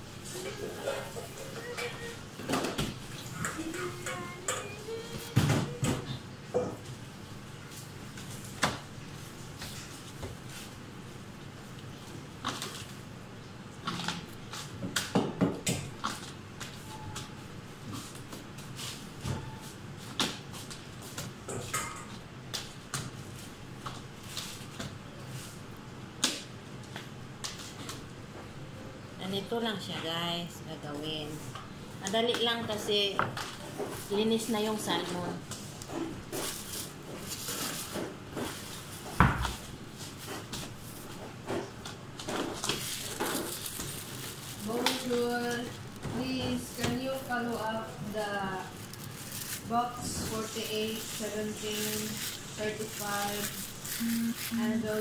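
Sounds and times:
kitchen handling noises: 0:00.2 - 0:06.9, 0:34.9 - 0:55.0.

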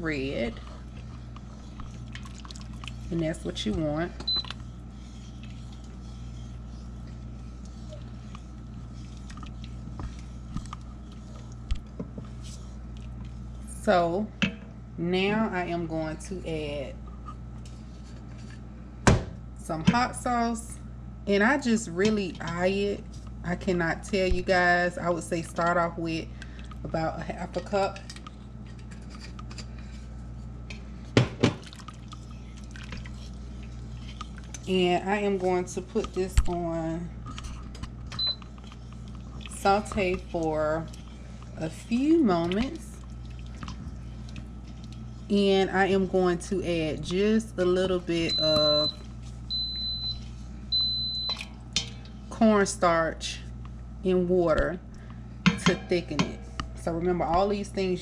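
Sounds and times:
steady low hum: 0:00.0 - 0:58.0
spoon stirring thick sauce: 0:00.1 - 0:13.6, 0:31.7 - 0:46.4.

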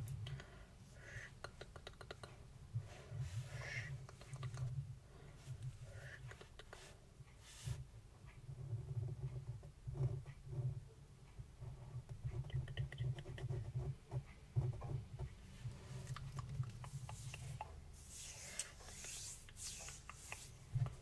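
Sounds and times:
hands rubbing near microphone: 0:15.5 - 0:21.0
pen scratching on paper: 0:16.8 - 0:21.0.

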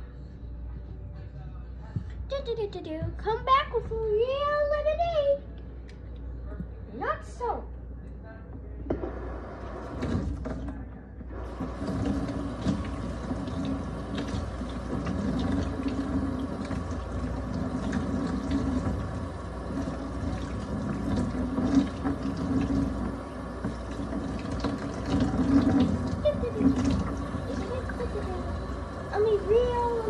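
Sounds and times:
water running: 0:11.3 - 0:30.0
water splashing: 0:11.5 - 0:30.0.

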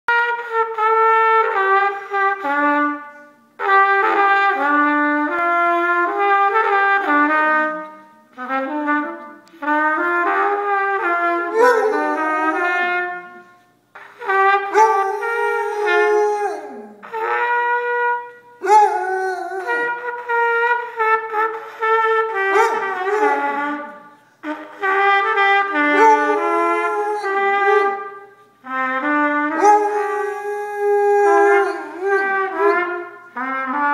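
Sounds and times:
trumpet playing a tune: 0:00.1 - 0:33.9
dog howling: 0:11.5 - 0:12.8, 0:14.7 - 0:17.1, 0:18.6 - 0:20.2, 0:22.5 - 0:23.8, 0:25.9 - 0:28.0, 0:29.6 - 0:33.0.

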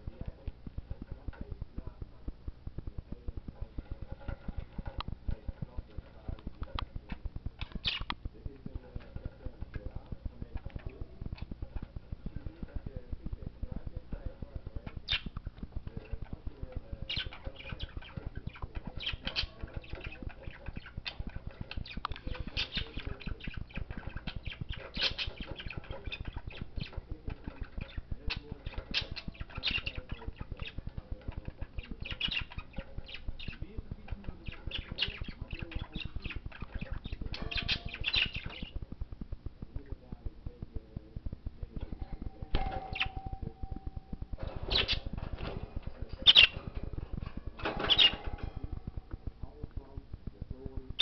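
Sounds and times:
bird pecking and chewing toy: 0:03.3 - 0:39.8.

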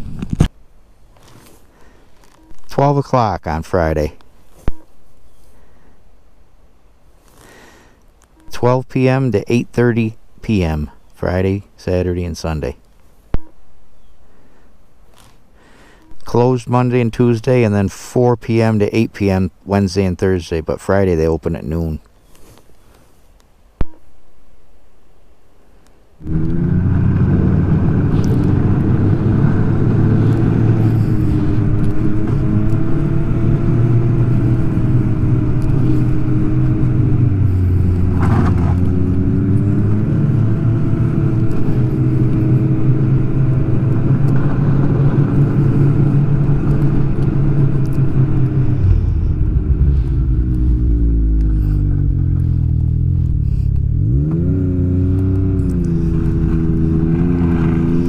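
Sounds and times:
snowmobile engine running: 0:26.2 - 0:58.0.

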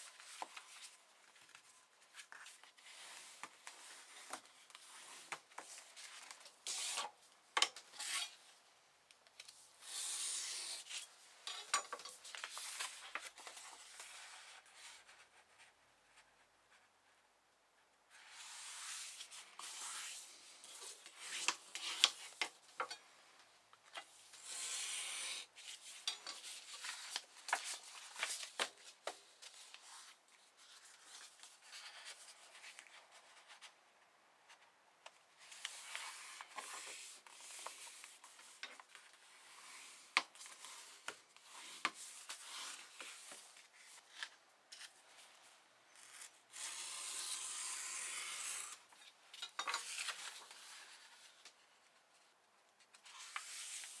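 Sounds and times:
paper rustling and sliding: 0:24.4 - 0:33.7.

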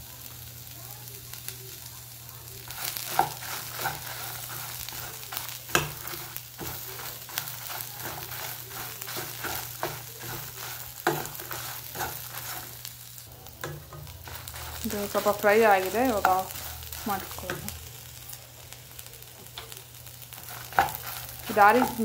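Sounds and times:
spices sizzling in oil: 0:00.0 - 0:22.0
spatula scraping pan: 0:02.6 - 0:17.8, 0:20.3 - 0:22.0.

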